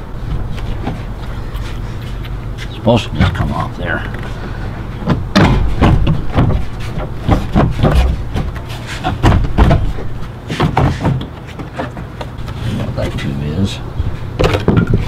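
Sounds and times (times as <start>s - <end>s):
plastic panel knocks and rattles: 5.0s - 10.0s, 10.6s - 12.1s.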